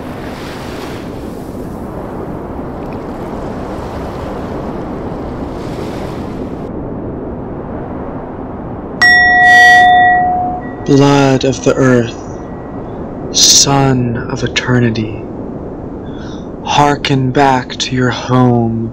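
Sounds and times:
ocean surf: 0.0 - 18.9
bell-like ding: 9.0 - 11.0.

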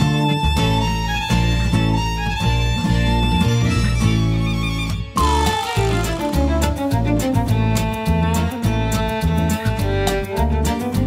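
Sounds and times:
string instrument music: 0.0 - 11.0.

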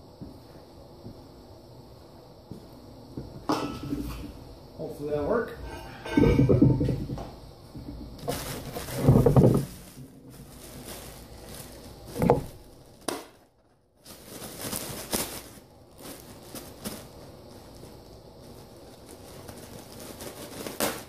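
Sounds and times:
plastic crinkling and rustling: 5.6 - 21.0
knocks and thuds: 6.1 - 9.9, 12.1 - 12.7.

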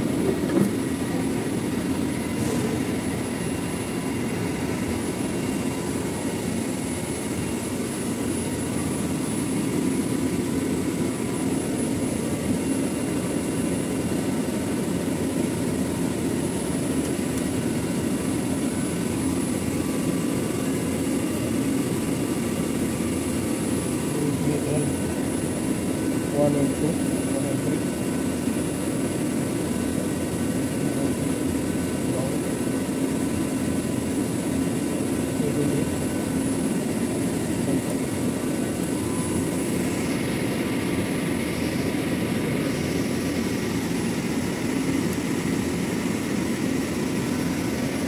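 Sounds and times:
faint whining tones: 35.4 - 47.6.

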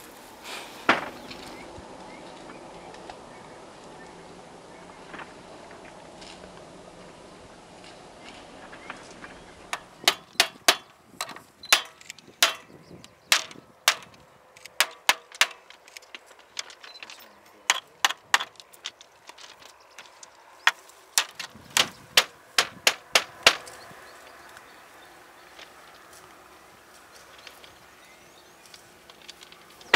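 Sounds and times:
sharp knocks on wooden frame: 0.9 - 1.2, 9.7 - 14.2, 14.8 - 15.8, 20.7 - 23.7.

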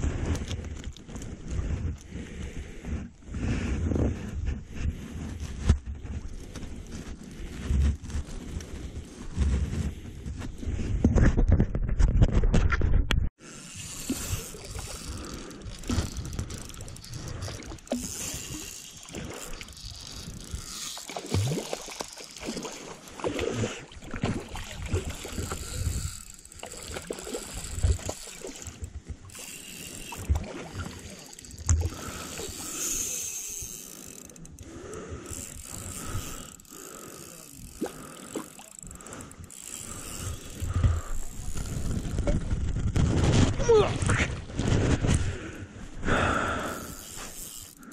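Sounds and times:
spinning reel being cranked: 13.6 - 22.9, 25.0 - 42.2, 46.7 - 47.9
fish splashing at water surface: 13.8 - 25.8.

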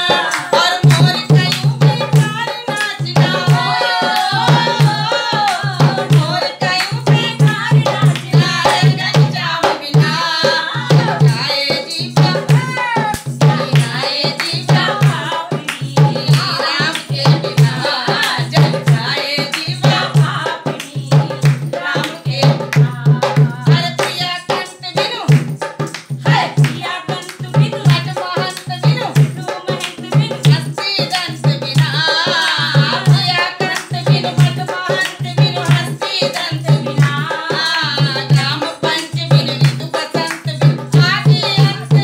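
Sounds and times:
hand drum beat: 0.0 - 42.0
women singing devotional song: 0.0 - 42.0
hands clapping: 0.3 - 0.5, 13.1 - 13.3.

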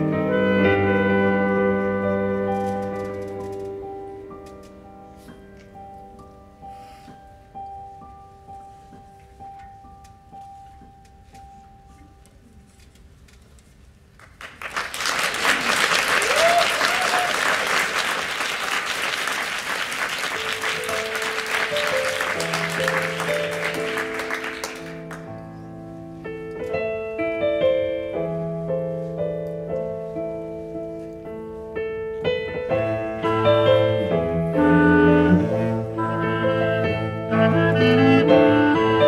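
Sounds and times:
chamber ensemble playing slow piece: 0.0 - 12.8, 20.4 - 39.0
audience applause: 14.2 - 25.3.

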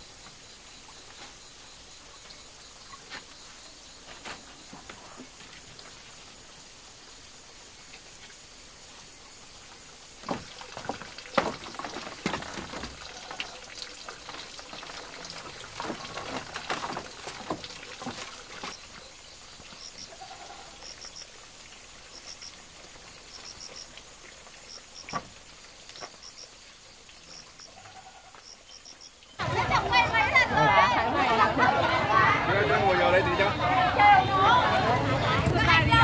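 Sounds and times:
woven bamboo rustling and knocking: 4.0 - 6.0, 10.2 - 19.8, 25.0 - 26.2.

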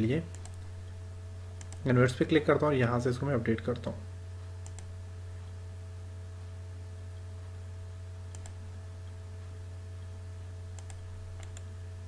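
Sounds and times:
steady low hum: 0.0 - 12.0
computer mouse double-clicking: 4.6 - 4.9, 8.3 - 8.6, 10.8 - 11.7.

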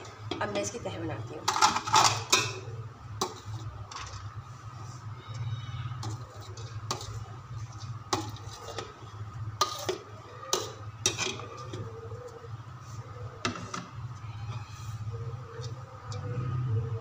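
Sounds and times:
metal spoon scraping colander: 5.9 - 12.0.

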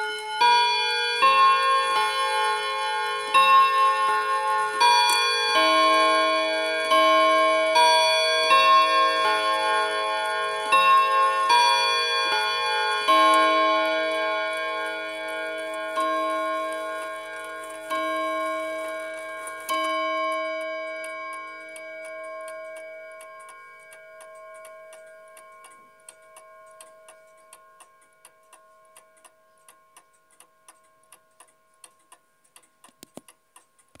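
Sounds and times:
clock gong striking: 0.0 - 25.6
clock ticking: 0.0 - 34.0.

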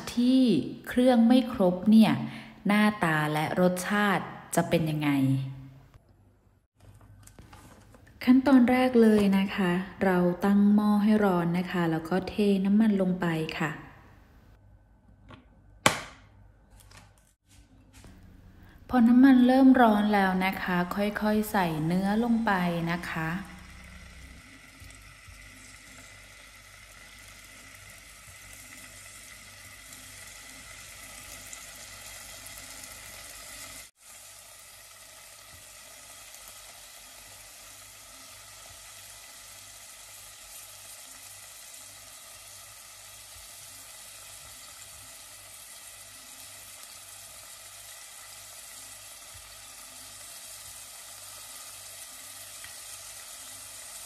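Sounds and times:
meat sizzling in hot oil: 20.0 - 54.0.

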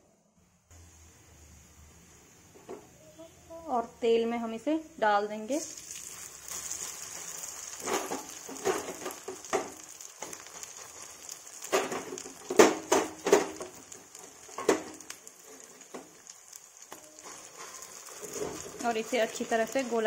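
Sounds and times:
paste sizzling in hot oil: 5.3 - 20.0.

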